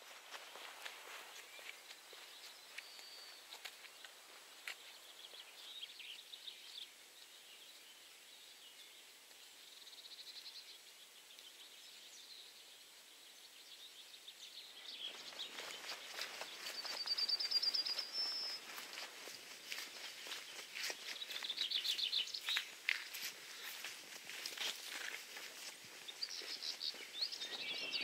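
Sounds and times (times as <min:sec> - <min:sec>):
footsteps on dirt path: 0:00.0 - 0:05.9, 0:14.8 - 0:28.0
songbirds singing: 0:00.0 - 0:28.0.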